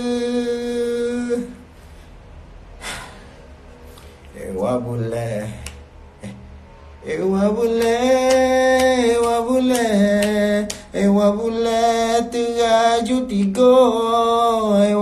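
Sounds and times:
man singing unaccompanied: 0.0 - 1.7, 4.3 - 6.4, 7.0 - 15.0.

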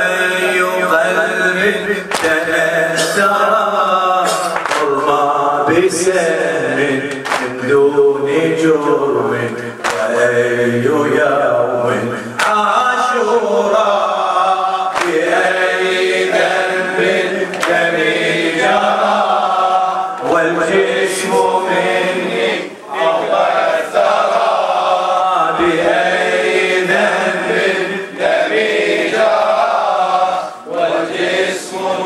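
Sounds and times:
men chanting in unison: 0.0 - 32.0
chest-beating slaps: 4.3 - 5.0, 14.9 - 15.3.

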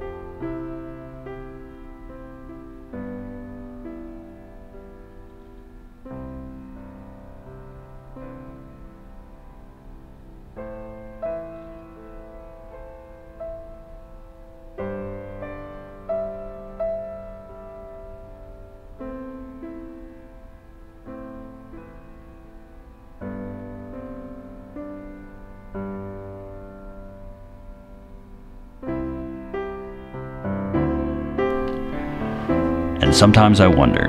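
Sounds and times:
slow piano music: 0.0 - 34.0.

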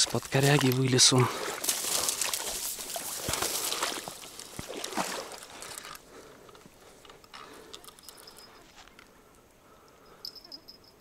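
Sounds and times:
water splashing at bank: 0.0 - 6.0.

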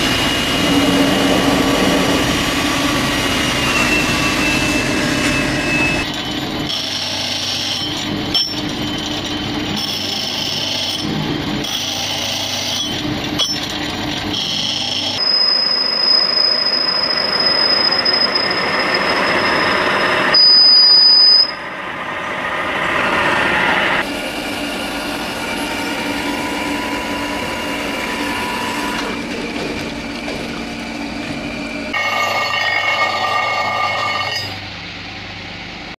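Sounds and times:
high-pitched whine: 0.0 - 6.6
lathe cutting steel: 0.0 - 34.7
shop machinery running: 0.0 - 35.9.

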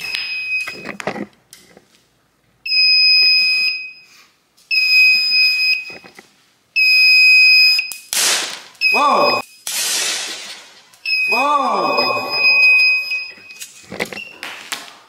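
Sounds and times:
high-pitched fire alarm beeps: 0.0 - 1.0, 2.6 - 6.0, 6.8 - 8.1, 8.8 - 9.7, 11.0 - 14.4.

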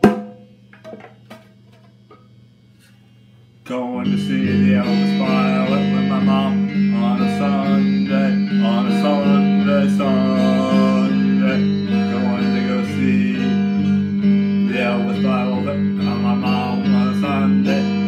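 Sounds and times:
electric guitar strumming: 3.7 - 18.0
man singing: 3.7 - 18.0.

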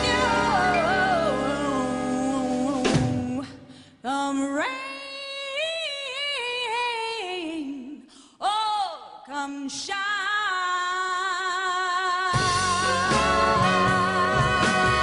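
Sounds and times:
jazz band hit and chord: 0.0 - 3.1, 12.4 - 15.0
woman singing jazz melisma: 0.0 - 7.9, 9.3 - 15.0.

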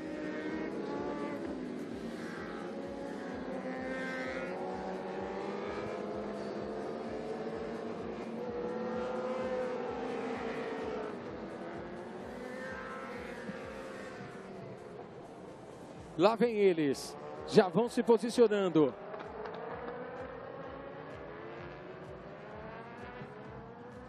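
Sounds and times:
racing motorcycle engines: 0.0 - 24.0.

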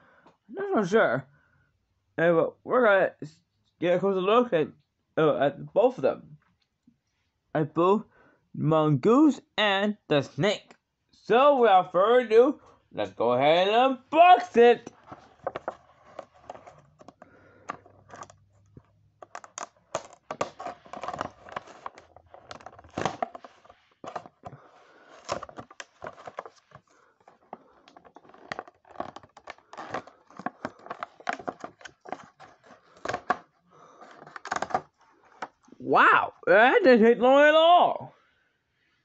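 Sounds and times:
plastic packaging crackling: 15.0 - 35.4
cardboard scratching and tearing: 19.2 - 34.8.

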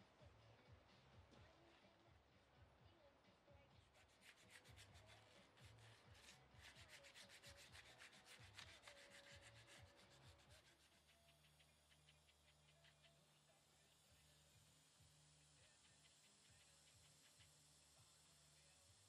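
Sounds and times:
hand sanding stone: 4.0 - 18.5.

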